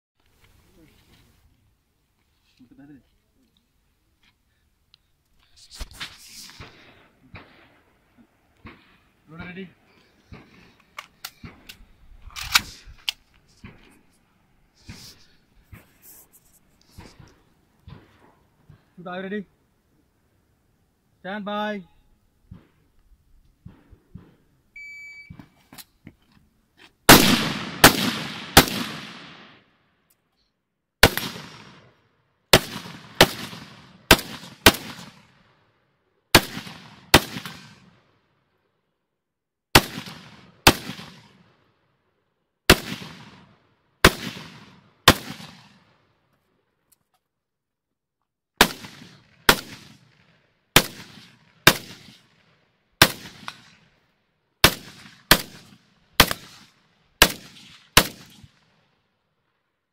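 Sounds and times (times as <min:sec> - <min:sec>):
electronic timer beep: 0:24.8 - 0:25.3
rifle shots echoing: 0:27.1 - 0:29.7, 0:31.0 - 0:35.4, 0:36.3 - 0:38.0, 0:39.7 - 0:41.5, 0:42.7 - 0:45.9, 0:48.6 - 0:52.4, 0:53.0 - 0:53.9, 0:54.6 - 0:58.6.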